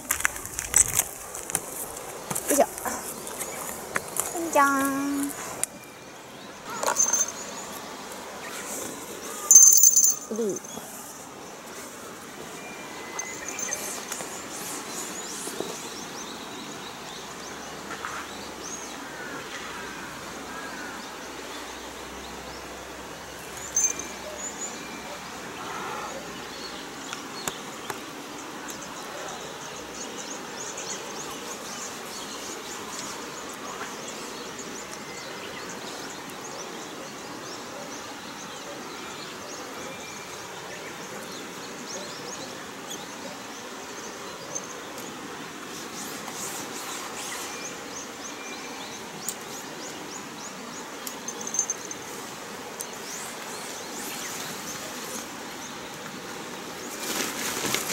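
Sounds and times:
steady hiss: 0.0 - 57.9
high chirping calls: 23.6 - 25.0.

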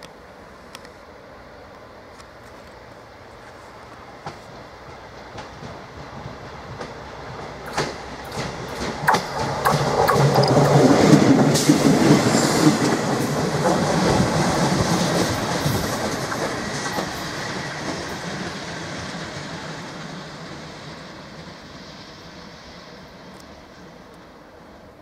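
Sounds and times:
railcar wheels clattering over joints: 3.4 - 20.8.

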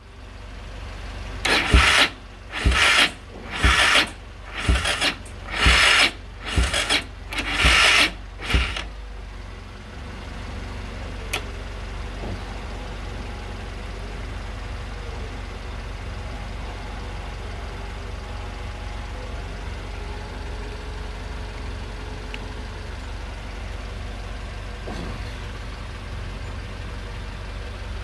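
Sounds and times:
electric starter cranking engine: 1.4 - 8.9.

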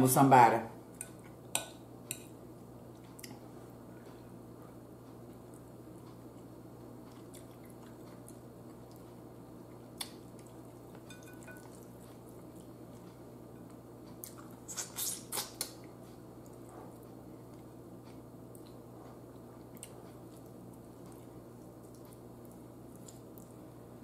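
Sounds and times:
soft chewing: 0.9 - 23.8
wet mouth smacks: 14.2 - 15.8.

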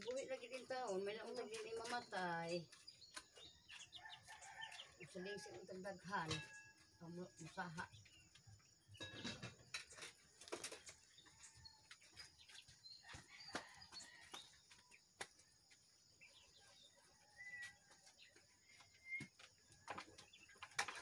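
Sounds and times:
bird chirp: 0.0 - 21.0
plastic plant pots being handled: 9.2 - 15.9, 17.4 - 21.0.

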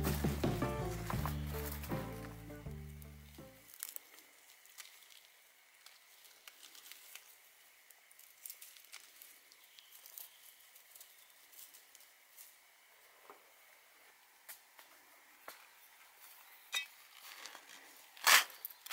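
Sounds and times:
fingers picking at dry soil: 0.0 - 12.6.

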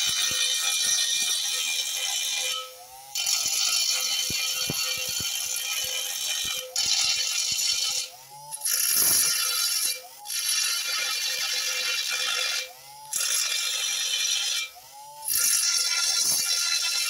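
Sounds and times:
motor whining spinning free: 0.0 - 10.9
abrasive disc grinding metal: 0.0 - 17.0.

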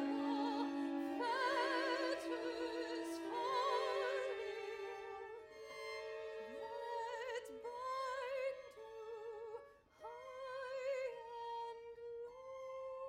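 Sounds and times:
soprano singing with vibrato: 0.0 - 5.3
bowed string orchestra: 0.0 - 13.0.

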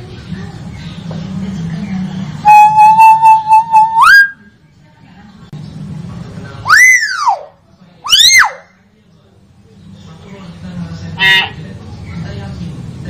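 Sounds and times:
bird whistles rising and falling: 2.4 - 4.5, 6.7 - 7.4.

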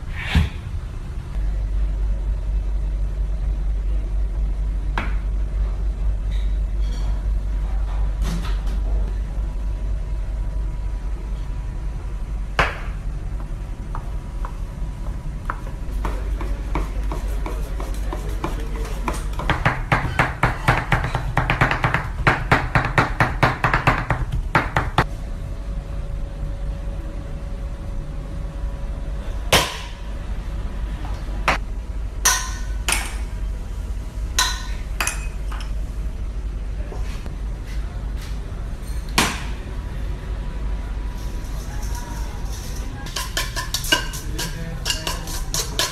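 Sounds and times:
spoon clinking steel bowl: 43.1 - 45.9.

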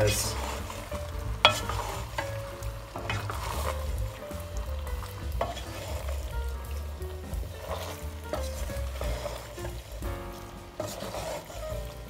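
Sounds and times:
food sizzling in a pot: 0.0 - 12.0
wooden spoon stirring: 0.0 - 12.0
spoon knocking against pot: 1.4 - 1.8.

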